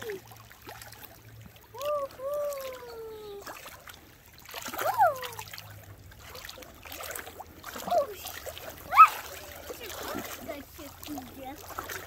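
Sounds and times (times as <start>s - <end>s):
water splashing and trickling: 0.0s - 12.0s
child calling out: 1.8s - 3.5s, 4.8s - 5.5s, 8.9s - 9.4s.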